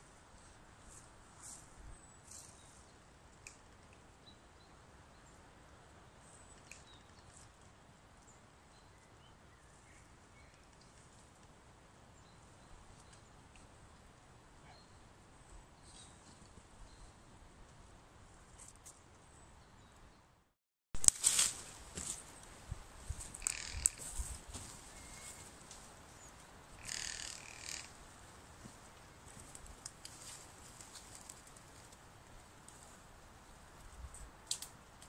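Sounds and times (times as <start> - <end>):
faint forest ambience hiss: 21.1 - 35.0.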